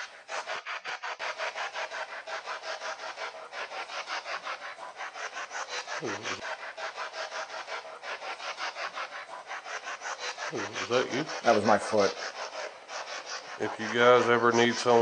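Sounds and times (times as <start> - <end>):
chopped radio static: 6.0 - 6.4, 13.4 - 15.0.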